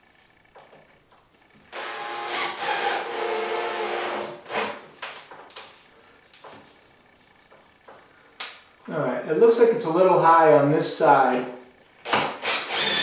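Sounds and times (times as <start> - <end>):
cordless drill driving screw: 1.7 - 4.8, 12.0 - 13.0.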